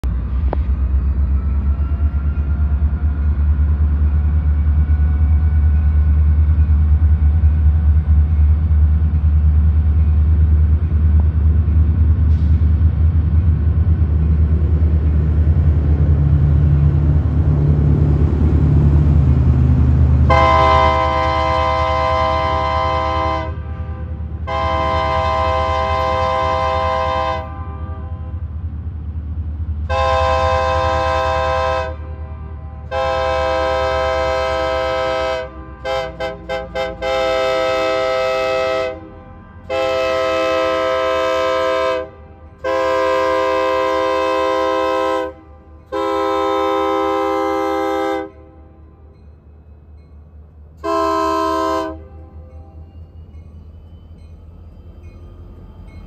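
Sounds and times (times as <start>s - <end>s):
locomotive rumble: 0.0s - 56.0s
locomotive horn blasts: 20.3s - 28.5s, 29.9s - 48.8s, 50.8s - 52.5s.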